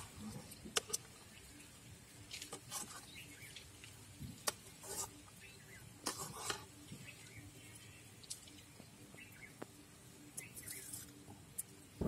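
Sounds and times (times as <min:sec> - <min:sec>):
small birds chirping: 0:00.0 - 0:12.0
metal ladle scraping a pan: 0:04.8 - 0:05.2, 0:06.0 - 0:06.8.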